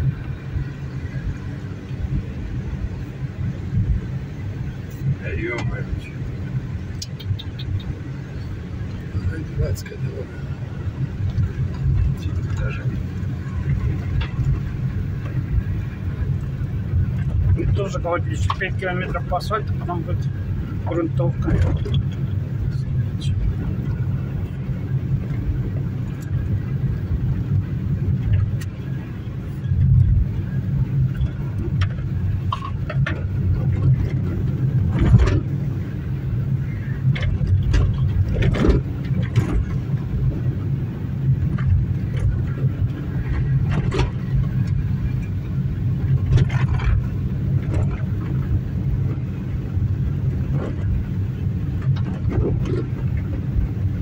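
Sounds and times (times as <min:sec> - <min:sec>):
car engine and tyres rumbling: 0:00.0 - 0:54.0
knocks and rattles from rough road: 0:00.0 - 0:54.0.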